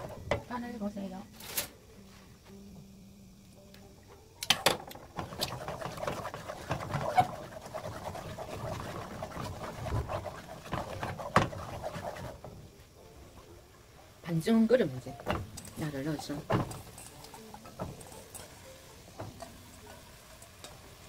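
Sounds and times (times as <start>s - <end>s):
wooden spoon stirring thick sauce: 5.1s - 12.8s, 15.1s - 21.0s
spoon knocking against pan: 15.1s - 17.0s.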